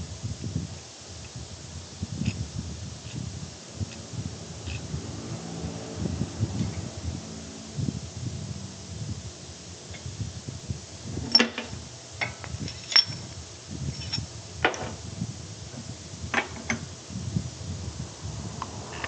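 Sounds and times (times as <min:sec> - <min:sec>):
low rumble: 0:02.4 - 0:14.3
metal tools clinking: 0:11.3 - 0:13.3, 0:13.9 - 0:14.3.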